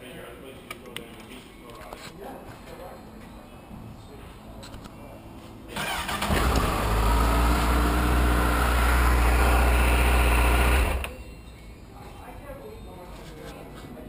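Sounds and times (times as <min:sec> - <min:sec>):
motorcycle starter cranking: 0:05.7 - 0:11.2.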